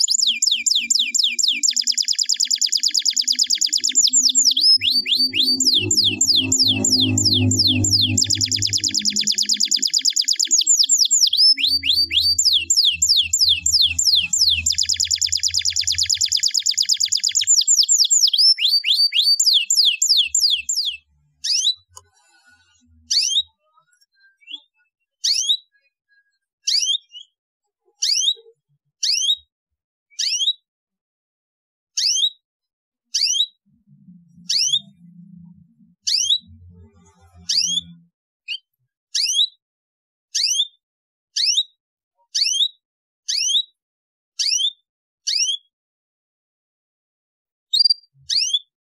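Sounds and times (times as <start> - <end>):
canary singing: 0.0 - 21.9, 33.2 - 38.0
faint low rumble: 4.0 - 9.9, 11.3 - 16.2, 33.7 - 38.1.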